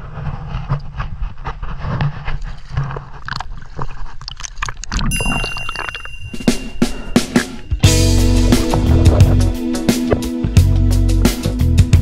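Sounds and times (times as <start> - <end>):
water sloshing and splashing: 0.5 - 10.2
music: 6.3 - 12.0
low rumble: 6.6 - 11.2.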